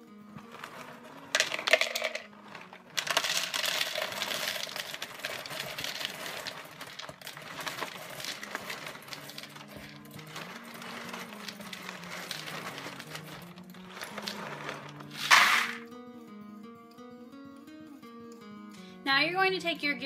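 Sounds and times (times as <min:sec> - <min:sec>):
dry cereal pouring into cup: 0:00.4 - 0:15.8.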